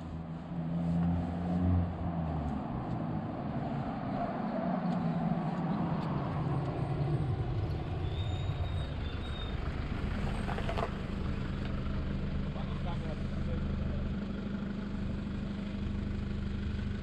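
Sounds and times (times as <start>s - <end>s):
tyre and road noise: 0.0s - 13.5s
car engine humming: 0.0s - 17.0s.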